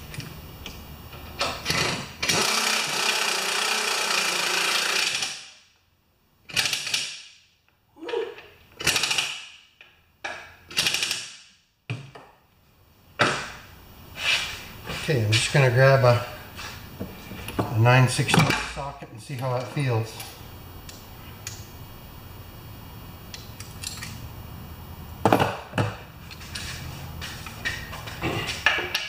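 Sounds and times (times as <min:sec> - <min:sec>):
electric impact wrench running: 0:01.6 - 0:05.6.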